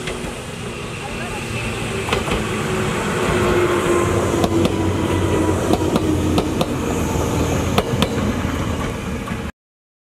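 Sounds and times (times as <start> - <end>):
electric train humming past: 0.0 - 9.5
wheels clicking over rail joints: 2.1 - 2.5.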